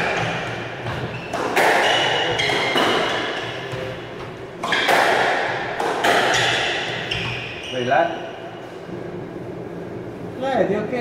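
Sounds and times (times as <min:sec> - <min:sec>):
squash ball hitting walls: 0:00.0 - 0:07.6.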